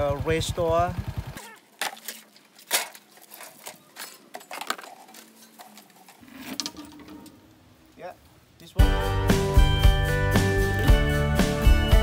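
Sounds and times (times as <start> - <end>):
scrap metal clinking and rattling: 1.8 - 7.5.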